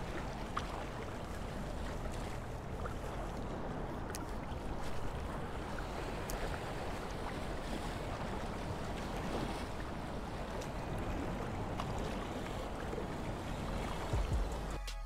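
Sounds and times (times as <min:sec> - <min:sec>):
water rushing at spillway: 0:00.0 - 0:14.8.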